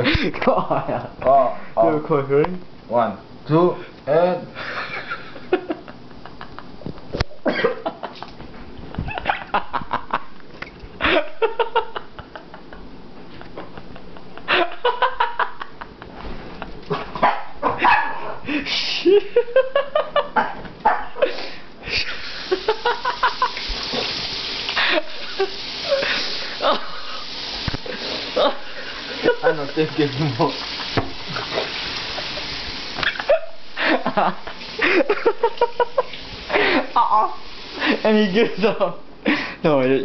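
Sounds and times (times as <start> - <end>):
people laughing: 4.6 - 10.4, 11.0 - 16.8, 19.0 - 23.8, 24.7 - 39.5
tap running into sink: 29.9 - 32.0.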